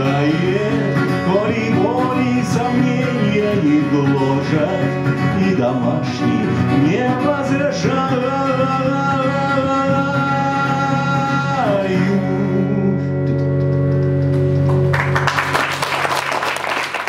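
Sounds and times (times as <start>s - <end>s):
man singing: 0.0s - 13.5s
acoustic guitar: 0.0s - 15.5s
audience applause: 14.6s - 17.0s.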